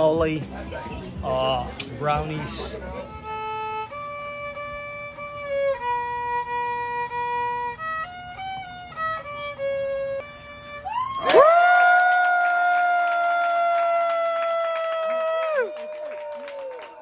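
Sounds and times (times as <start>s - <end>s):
solo violin slow melody: 2.6s - 11.2s.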